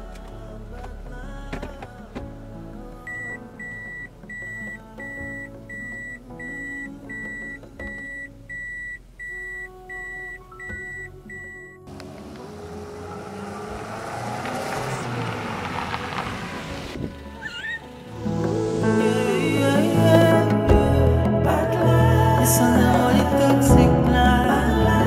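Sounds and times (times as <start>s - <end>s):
soft background music: 0.0s - 25.0s
high electronic beep: 3.1s - 11.8s
rising rush of noise: 11.9s - 20.6s.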